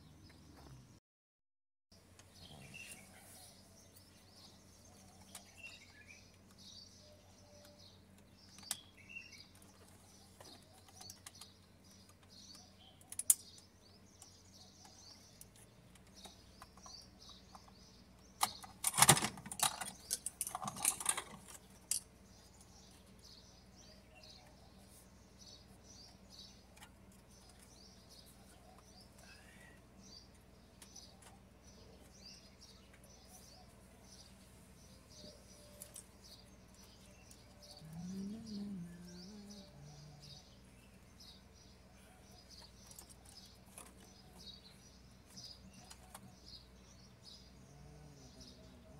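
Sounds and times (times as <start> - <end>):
birds chirping: 2.0 - 48.9
plastic and metal parts clattering: 18.4 - 22.0.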